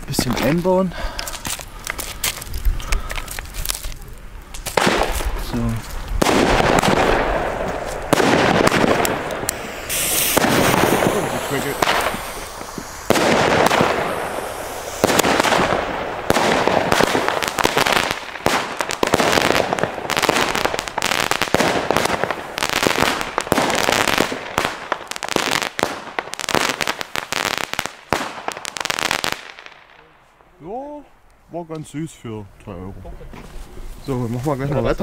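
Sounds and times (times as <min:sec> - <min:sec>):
firework crackling: 0:01.2 - 0:30.1
firework launch shots: 0:04.6 - 0:30.0.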